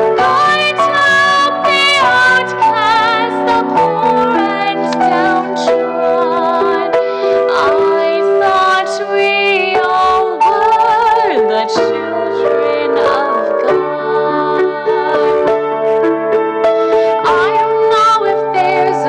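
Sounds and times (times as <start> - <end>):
grand piano playing: 0.0 - 19.0
person singing: 0.2 - 15.6.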